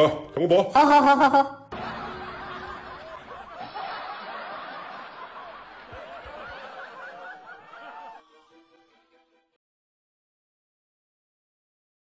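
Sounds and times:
laugh track: 0:00.0 - 0:09.0
music notes: 0:01.7 - 0:04.0.

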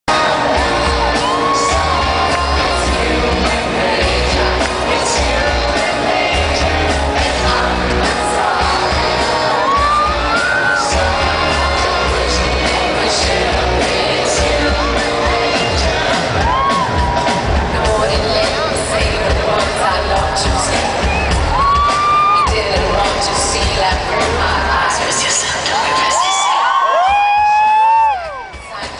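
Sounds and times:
woman singing: 0:00.1 - 0:16.8, 0:17.7 - 0:26.7, 0:28.2 - 0:28.9
fans shouting and whooping: 0:00.1 - 0:18.5, 0:20.4 - 0:28.9
live pop band with heavy bass: 0:00.1 - 0:28.9.

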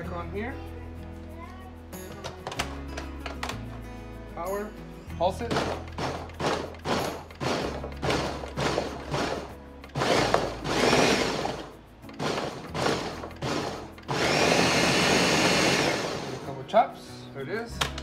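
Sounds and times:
blender pulsing: 0:07.4 - 0:09.4, 0:10.0 - 0:16.5.

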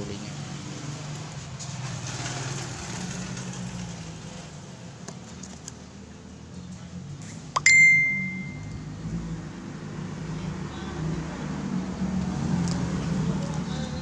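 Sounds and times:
bell-like metallic ding: 0:07.6 - 0:08.8.

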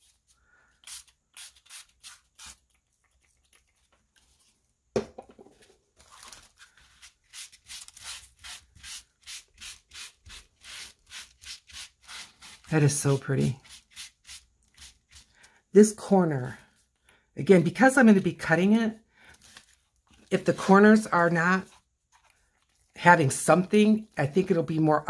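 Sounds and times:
spray bottle spritzes: 0:00.8 - 0:02.6.

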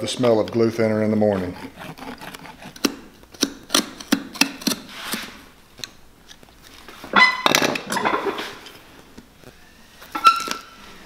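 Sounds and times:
knife clicking and scraping leather: 0:01.4 - 0:05.3
leather squeaking creak: 0:09.4 - 0:11.0.

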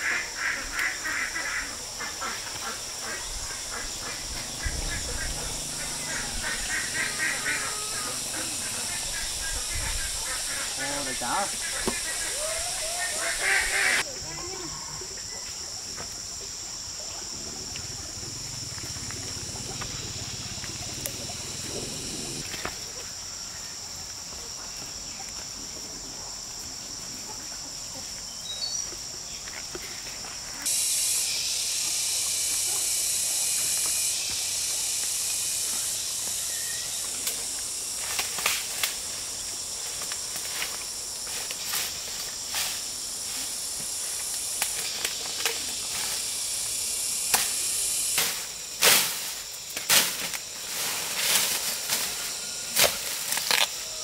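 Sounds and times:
high insect drone: 0:00.0 - 0:54.0
crunching through dry leaves: 0:48.8 - 0:54.0.

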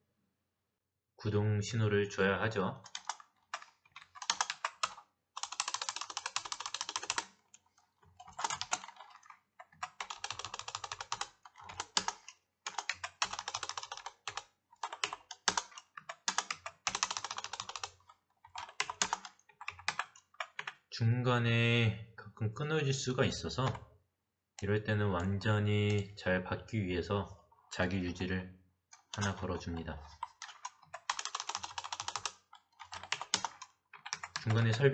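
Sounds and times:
typing on computer keyboard: 0:02.8 - 0:20.9, 0:29.0 - 0:34.8.

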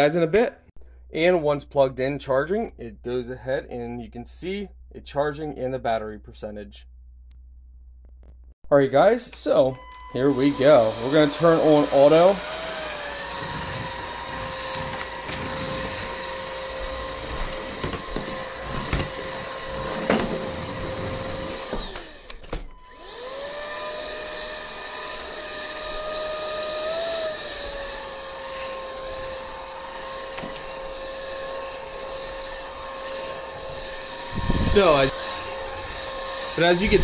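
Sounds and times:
vacuum cleaner motor whine: 0:09.8 - 0:37.0.

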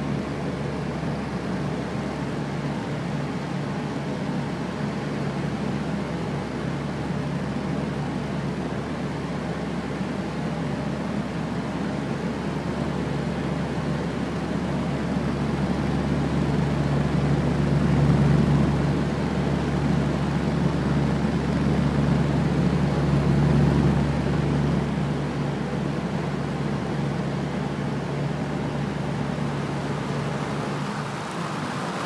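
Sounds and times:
fan air rushing: 0:00.0 - 0:32.0
low motor hum: 0:16.6 - 0:32.0.

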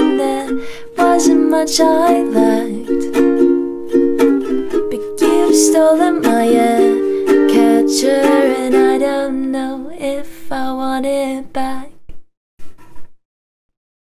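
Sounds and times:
woman singing: 0:00.0 - 0:03.1, 0:04.8 - 0:12.0
ukulele strumming: 0:00.0 - 0:10.2.

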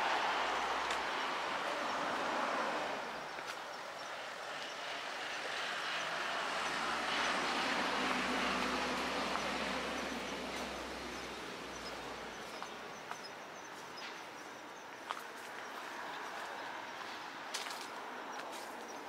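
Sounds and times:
vehicle passing by: 0:00.0 - 0:12.7.

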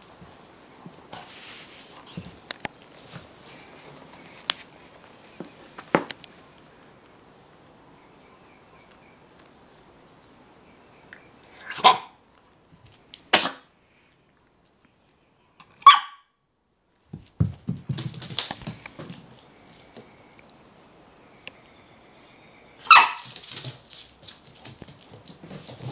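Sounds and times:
scuffling and rustling: 0:00.1 - 0:06.7, 0:23.1 - 0:25.9
dog barking: 0:11.7 - 0:12.2, 0:15.8 - 0:16.3, 0:22.8 - 0:23.2.

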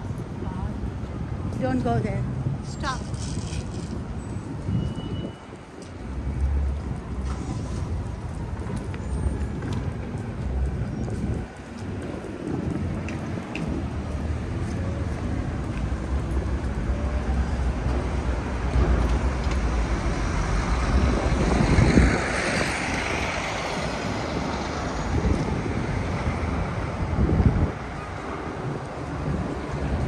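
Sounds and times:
street traffic: 0:00.0 - 0:30.0
wind rumbling on microphone: 0:00.0 - 0:30.0.

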